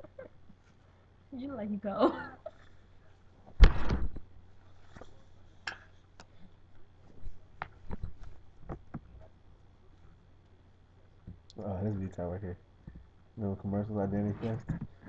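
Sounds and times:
loud thump: 0:03.6 - 0:04.2.

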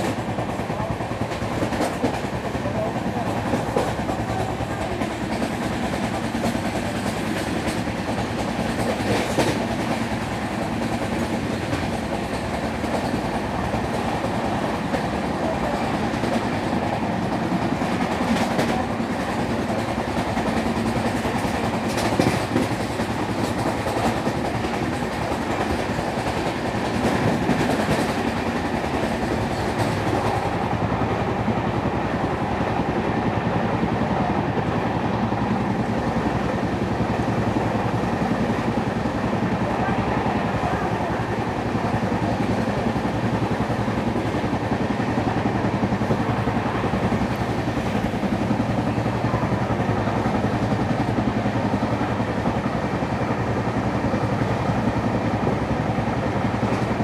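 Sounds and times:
clacks over rail joints: 0:00.0 - 0:30.6
train wheels rumbling on rails: 0:00.0 - 0:57.0.

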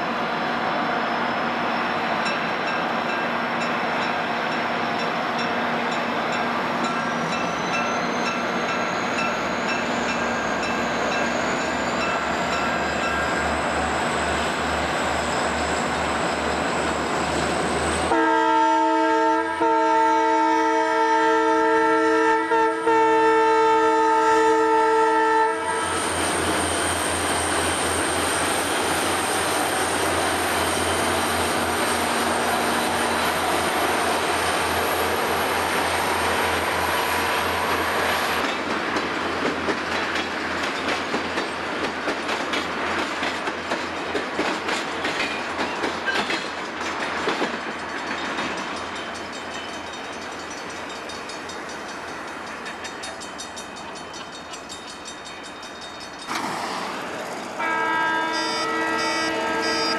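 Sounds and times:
locomotive air horn: 0:18.1 - 0:26.2, 0:57.6 - 0:59.9
train wheels clicking: 0:26.0 - 0:57.6.

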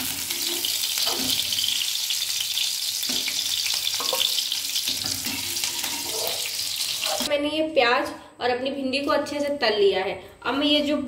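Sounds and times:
onions sizzling in hot oil: 0:00.0 - 0:07.3
spatula scraping a pan: 0:00.2 - 0:01.6, 0:03.1 - 0:07.3.

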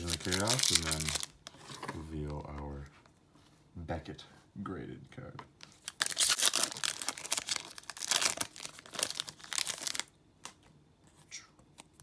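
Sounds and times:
foil wrapper tearing and crinkling: 0:00.0 - 0:01.3, 0:05.7 - 0:10.1.

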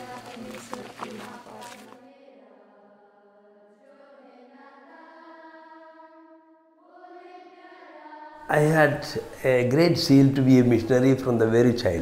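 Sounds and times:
group of voices singing hymn: 0:00.0 - 0:09.4.

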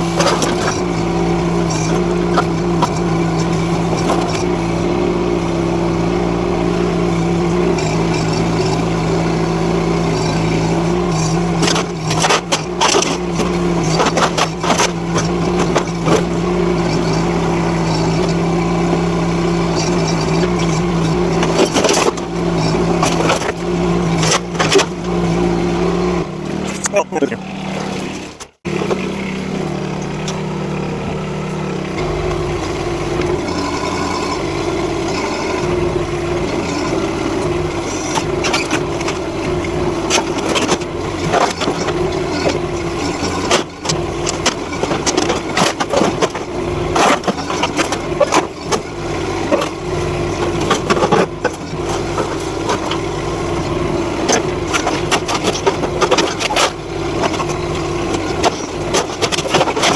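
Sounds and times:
excavator diesel engine running: 0:00.0 - 0:59.9
boards and metal cracking: 0:37.8 - 0:53.1, 0:53.7 - 0:59.9.

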